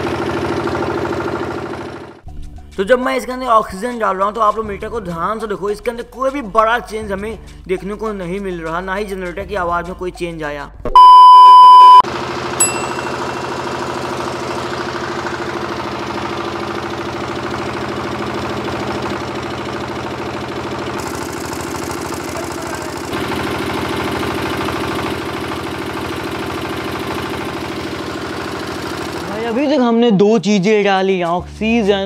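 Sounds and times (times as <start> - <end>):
diesel generator engine running: 0.0 - 2.3, 11.0 - 30.0.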